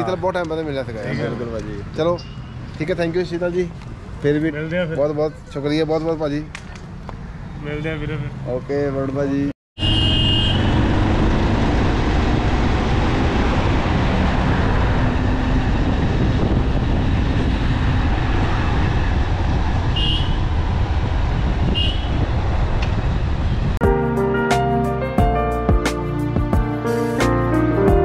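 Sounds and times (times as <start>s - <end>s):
road noise: 0.0s - 28.0s
wind rushing: 10.6s - 23.8s
soft piano music: 23.8s - 28.0s.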